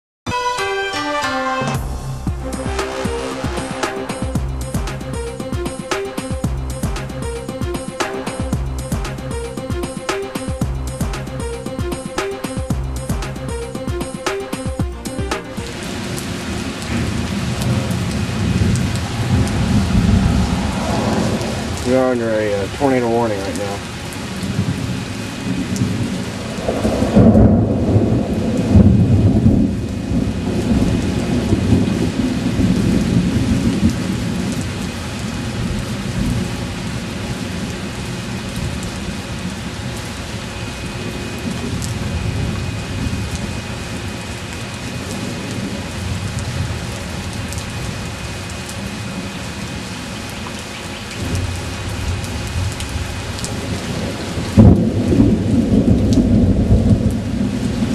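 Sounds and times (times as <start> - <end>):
thunder rumbling: 1.8 - 11.5, 15.5 - 49.3, 51.2 - 57.9
rain hiss: 1.8 - 57.9.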